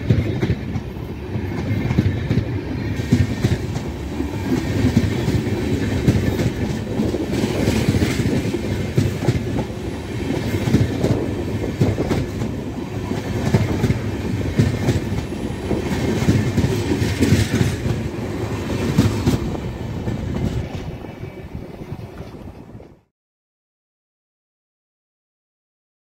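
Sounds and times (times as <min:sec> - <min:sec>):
train wheels clattering over rail joints: 0:00.0 - 0:21.0.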